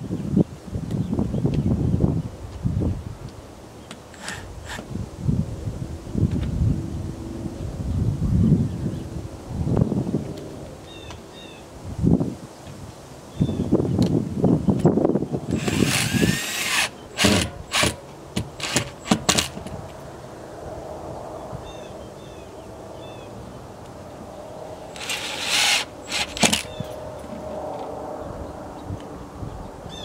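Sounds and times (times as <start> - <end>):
cordless drill driving screws: 4.0 - 4.8, 15.5 - 19.7, 24.9 - 26.8.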